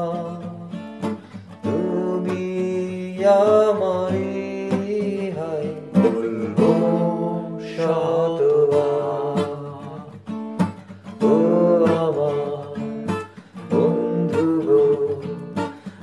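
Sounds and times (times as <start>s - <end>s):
acoustic guitar strummed: 0.0s - 16.0s
man singing long notes: 1.6s - 10.2s, 11.2s - 15.8s.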